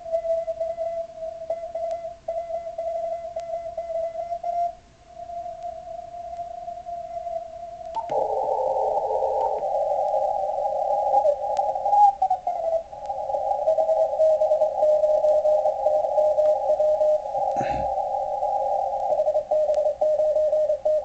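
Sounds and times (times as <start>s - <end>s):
steady morse tone: 0.0s - 19.0s
radio hiss: 5.2s - 21.0s.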